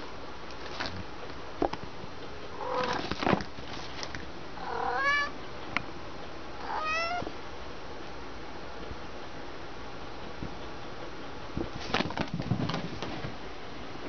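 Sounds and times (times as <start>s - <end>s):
cat meowing: 2.6s - 3.0s, 4.6s - 5.4s, 6.6s - 7.3s.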